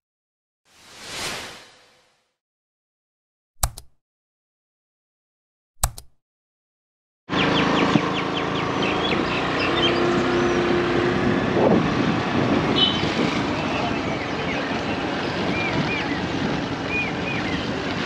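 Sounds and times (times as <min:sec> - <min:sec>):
sharp click: 0:03.6 - 0:04.0, 0:05.8 - 0:06.2
birds chirping: 0:07.3 - 0:10.9, 0:12.8 - 0:17.8
vehicle road noise: 0:07.3 - 0:18.0.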